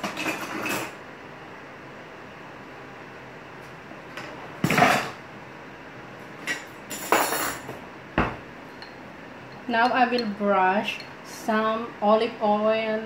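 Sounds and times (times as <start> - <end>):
kitchenware clinking and clattering: 0.0 - 1.0, 6.4 - 11.2.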